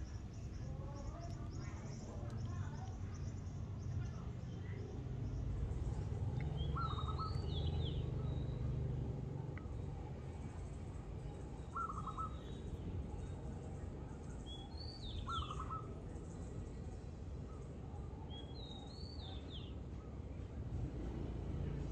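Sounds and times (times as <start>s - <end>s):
bird trilled call: 6.6s - 7.8s, 11.7s - 12.6s, 15.0s - 15.9s.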